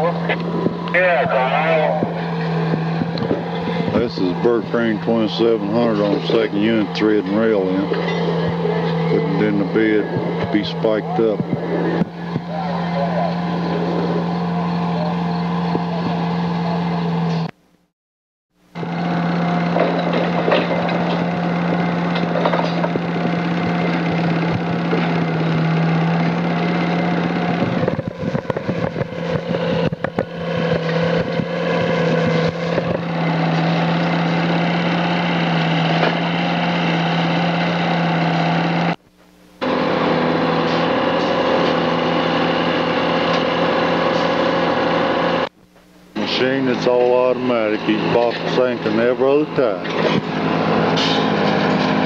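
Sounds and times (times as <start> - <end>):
mechanical running noise: 0.0 - 17.5, 18.7 - 37.8
low hum: 0.0 - 17.9.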